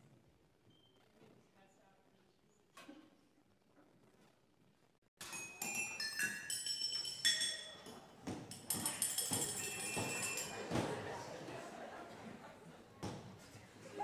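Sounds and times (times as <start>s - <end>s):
kitchen utensils jingling percussion: 5.2s - 11.0s.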